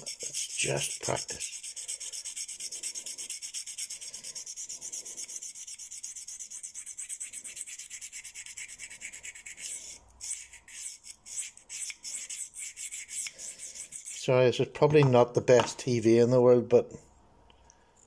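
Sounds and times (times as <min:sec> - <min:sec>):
knife scraping on sharpening stone: 0:00.0 - 0:14.2.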